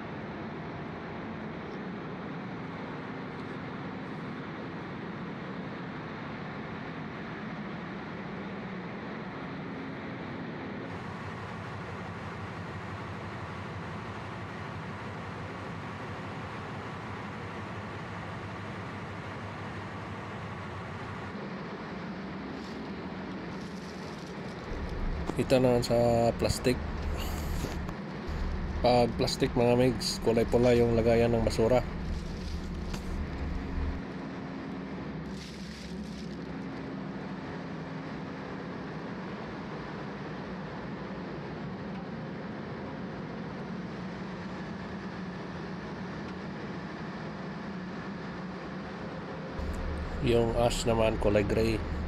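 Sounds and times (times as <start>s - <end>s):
engine room machinery drone: 0.0s - 52.0s
deep low rumble: 24.6s - 34.0s, 49.6s - 52.0s
plastic trash rustling: 35.3s - 36.4s.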